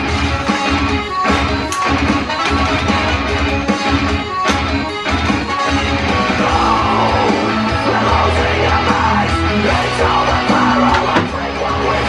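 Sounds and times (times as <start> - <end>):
loud rock music: 0.0 - 12.0
person shouting singing: 6.3 - 12.0.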